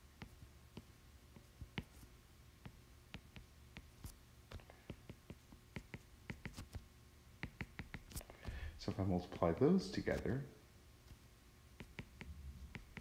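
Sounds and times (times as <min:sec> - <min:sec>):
low steady hum: 0:00.0 - 0:13.0
stylus tapping on glass screen: 0:07.4 - 0:08.1, 0:11.8 - 0:13.0.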